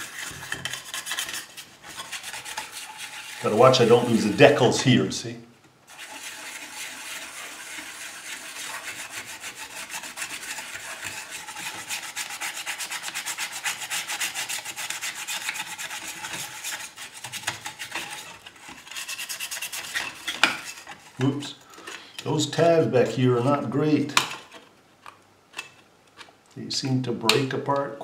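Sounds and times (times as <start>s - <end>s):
scrubbing on tin toy: 0.0s - 4.8s, 5.9s - 21.2s.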